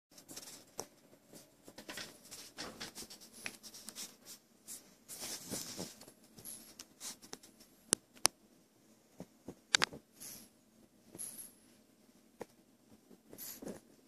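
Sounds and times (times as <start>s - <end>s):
dog snuffling in blanket: 13.3s - 13.9s.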